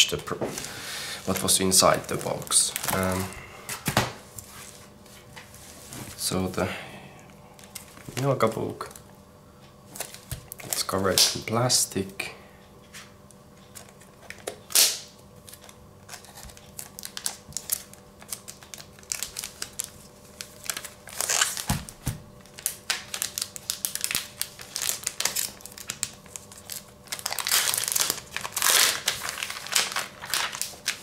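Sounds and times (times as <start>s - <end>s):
plastic film crinkling: 0.0s - 3.4s, 13.8s - 31.0s.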